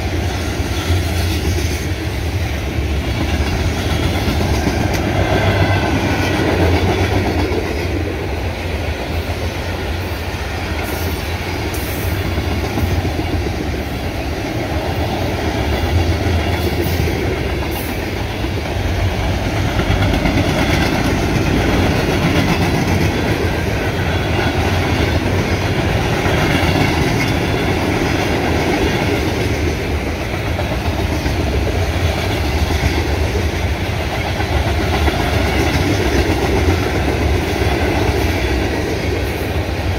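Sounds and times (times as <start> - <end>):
freight train wheels rumbling: 0.0 - 39.9.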